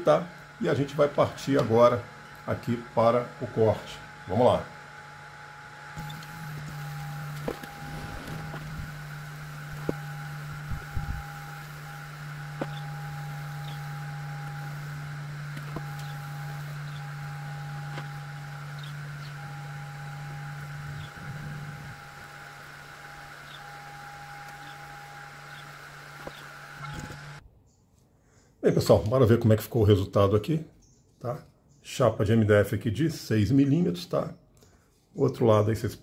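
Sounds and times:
laser engraver whine: 0.0 - 27.4
low hum: 0.3 - 27.4.

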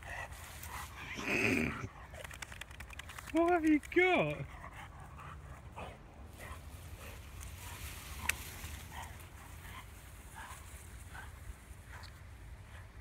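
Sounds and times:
branch rustling over grass: 6.6 - 11.0.

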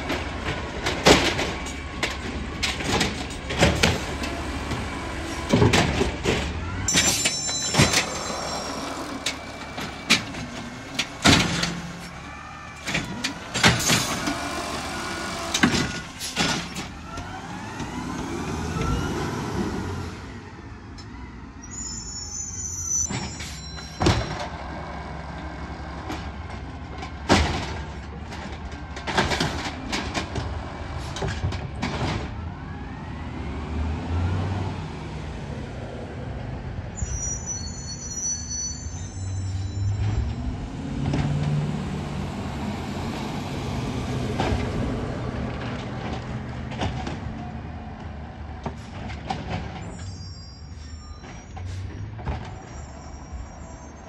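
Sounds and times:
diesel engine running: 0.0 - 20.6
hydraulics whining: 0.0 - 54.0
bin bangs and clatters: 5.5 - 8.5, 9.2 - 12.1, 27.2 - 30.5.

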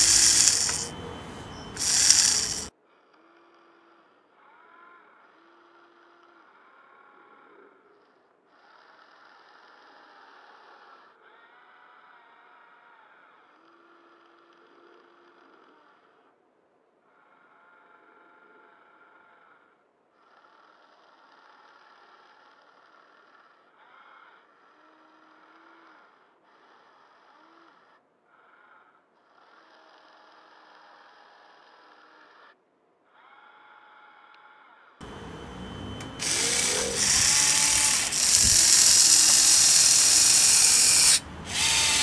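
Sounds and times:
electric motors whining: 0.0 - 2.7, 35.0 - 42.0
lower hum: 35.0 - 42.0.

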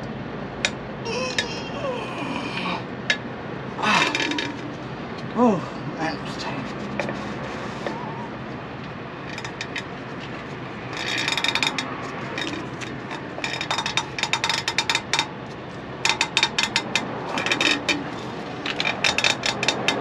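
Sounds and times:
ratchet clicking: 10.5 - 15.3, 16.1 - 20.0.

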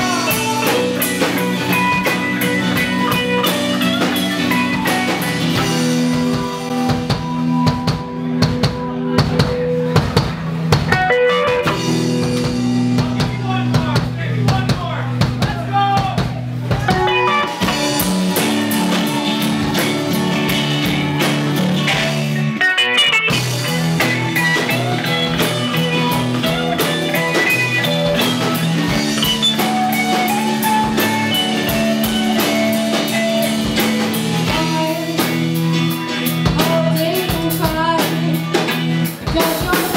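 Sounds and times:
drum kit hits: 0.0 - 22.5
bass guitar: 0.0 - 39.9
electric guitar: 0.0 - 39.9.

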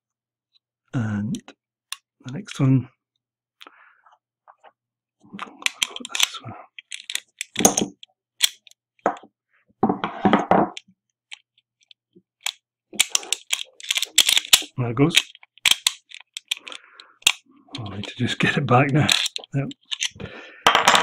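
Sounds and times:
rustling handling noises: 5.4 - 8.7, 11.3 - 20.2
small metal lock parts clicking: 5.4 - 8.8, 10.8 - 20.2.

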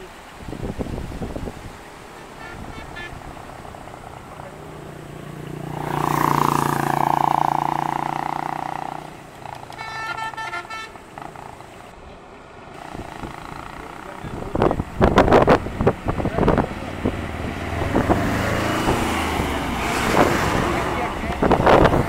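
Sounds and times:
vehicle horn blast: 2.1 - 3.3, 9.6 - 11.3
fluttering horn sound: 2.1 - 4.4, 5.8 - 11.9.

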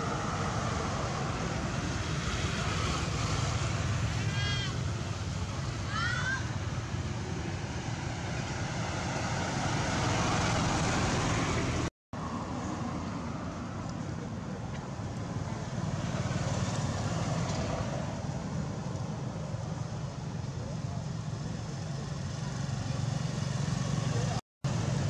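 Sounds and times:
outdoor background rumble and hiss: 0.0 - 25.0.

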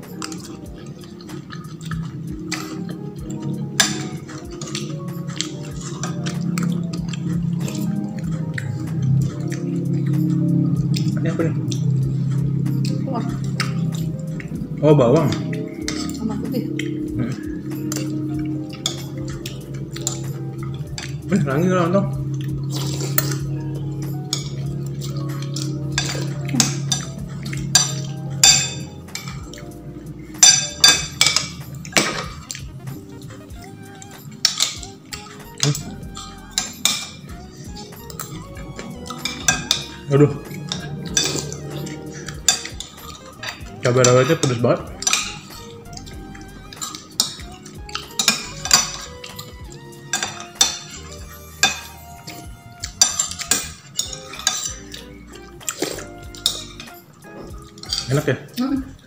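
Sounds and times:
cutlery clinking on a plate: 0.1 - 10.0, 15.2 - 16.2, 24.3 - 29.6, 30.4 - 32.6, 34.3 - 40.0, 40.6 - 58.2.

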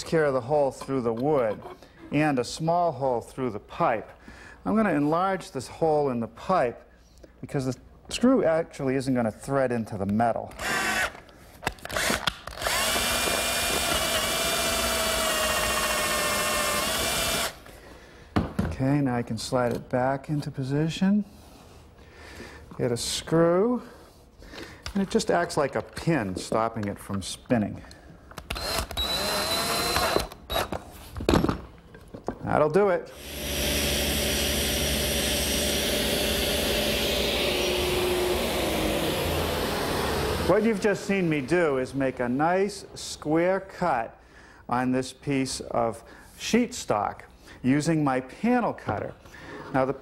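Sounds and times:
cordless drill drilling iron pipe: 10.6 - 11.1, 11.9 - 17.6, 28.5 - 30.7, 33.2 - 40.9
saw cutting sheet: 33.2 - 40.9
table saw motor whine: 33.2 - 40.9.

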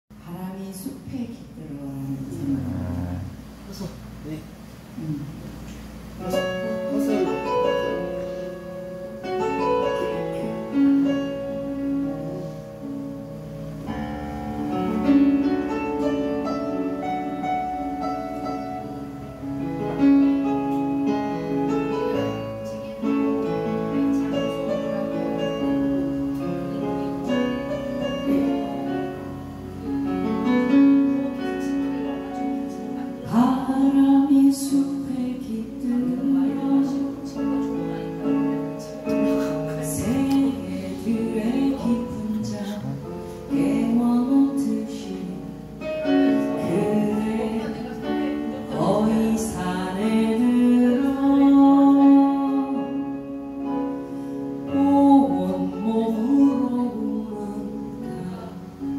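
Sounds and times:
keyboard piano: 0.1 - 58.9
woman singing: 31.3 - 53.6, 54.7 - 58.9.

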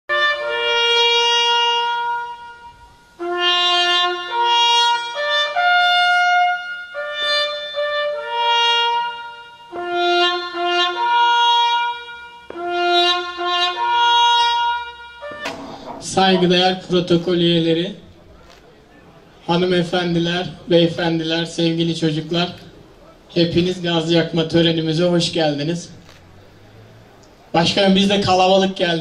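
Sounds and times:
solo trumpet slow melody: 0.1 - 17.4.

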